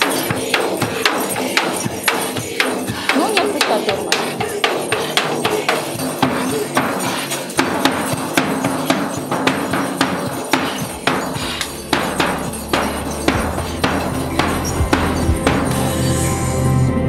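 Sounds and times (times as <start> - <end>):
frame drum beaten: 0.0 - 16.1.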